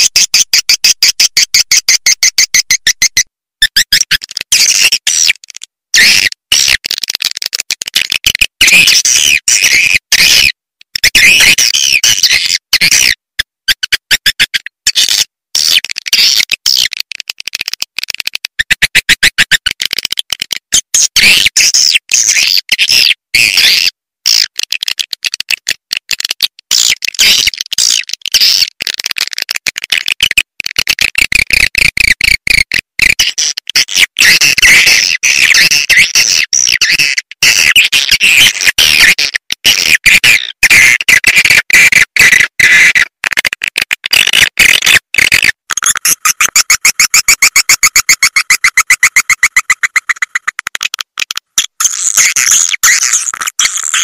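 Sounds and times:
recorded bird chirps and twitters: 0.0 - 7.7, 8.4 - 24.6, 33.2 - 43.2, 44.1 - 50.9, 51.5 - 54.0.

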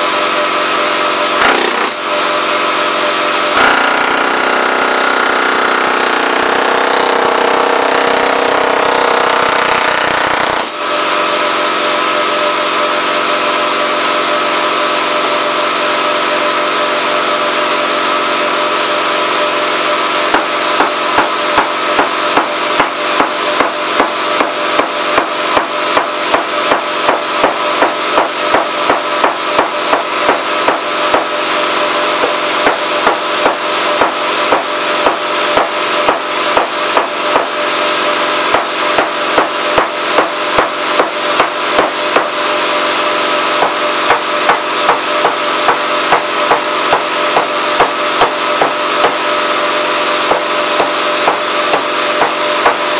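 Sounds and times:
mallet hammering aluminium: 1.4 - 2.2, 20.2 - 31.4, 32.2 - 37.7, 38.4 - 42.5, 43.4 - 52.9.

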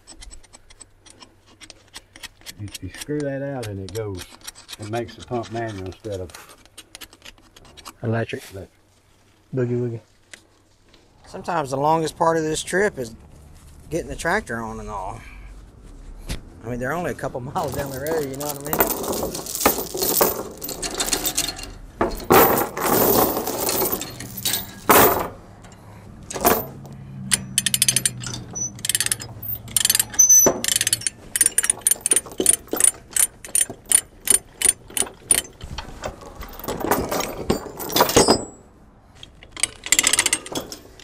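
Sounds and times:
chain binder ratchet clicks: 0.0 - 4.9, 27.3 - 35.6, 39.2 - 41.0
chain clanking and rattling: 17.6 - 41.0.

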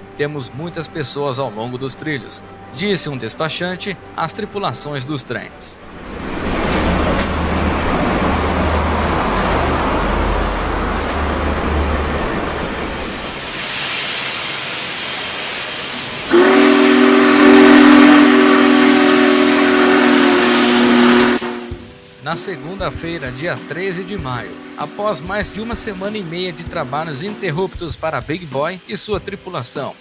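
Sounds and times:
train cars rumbling on rails: 2.1 - 28.6
hiss: 13.3 - 18.4
steam whistle chord: 15.2 - 27.8.

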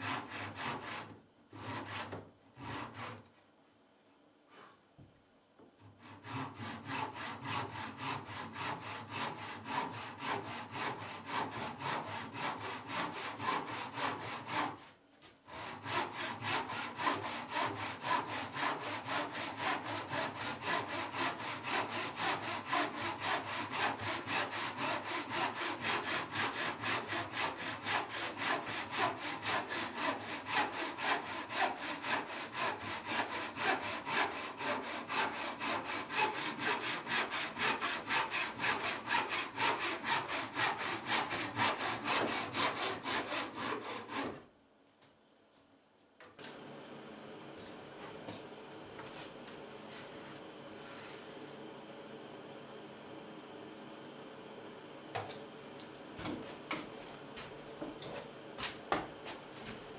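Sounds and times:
hand saw cutting wood: 0.0 - 3.2, 6.0 - 44.5.

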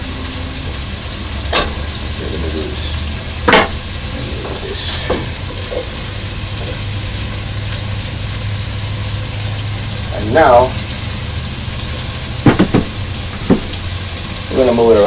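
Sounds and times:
potatoes sizzling in a pot: 0.0 - 15.0
cutting board knocking pot: 3.5 - 3.8, 12.4 - 13.8.

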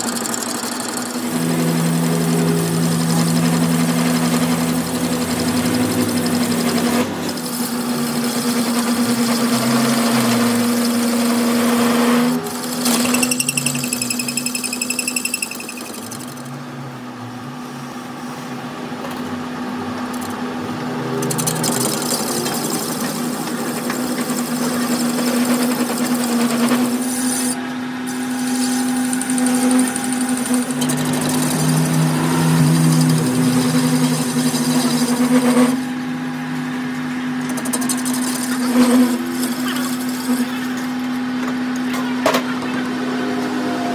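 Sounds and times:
cutting tool scraping metal: 0.0 - 16.5, 21.2 - 35.9, 37.4 - 40.9
thin high whine: 0.0 - 16.6, 21.8 - 41.2
lathe machine hum: 0.0 - 41.8.

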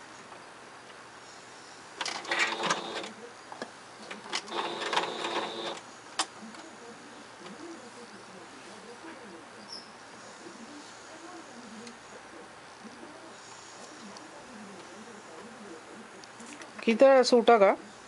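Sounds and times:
sewing machine stitching: 2.1 - 3.1, 4.5 - 5.8.

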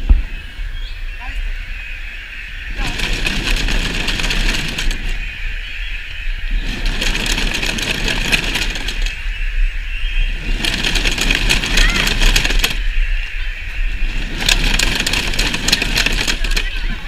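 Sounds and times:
children rattling noisemakers: 2.8 - 5.2, 6.6 - 9.2, 10.3 - 17.0.

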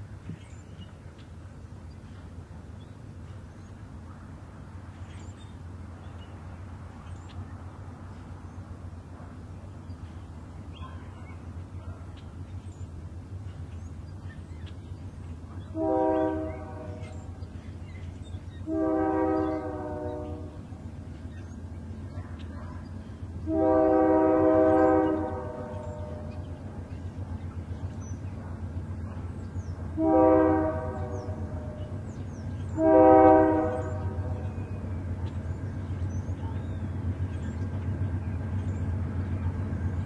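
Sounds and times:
diesel locomotive rumbling: 0.0 - 40.0
locomotive air horn blasts: 15.7 - 17.1, 18.7 - 20.6, 23.5 - 26.4, 30.0 - 32.0, 32.8 - 34.4.

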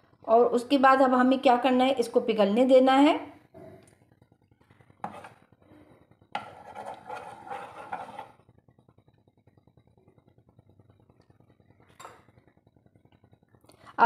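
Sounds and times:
spoon scraping a frying pan: 5.0 - 5.4, 6.4 - 8.4.

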